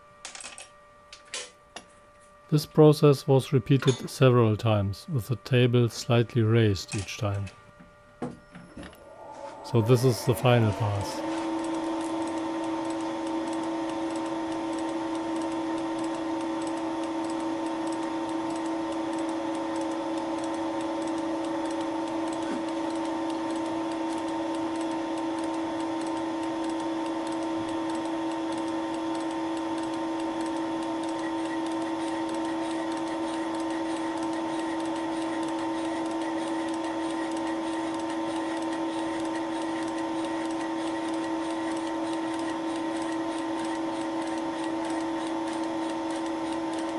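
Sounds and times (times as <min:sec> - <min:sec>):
milling machine humming: 0:06.5 - 0:46.9.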